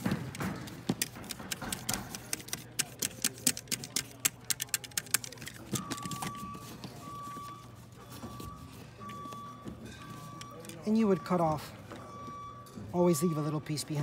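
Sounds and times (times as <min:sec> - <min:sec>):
tool clicking and tapping: 0:00.0 - 0:06.3
faint beeping: 0:05.6 - 0:14.0.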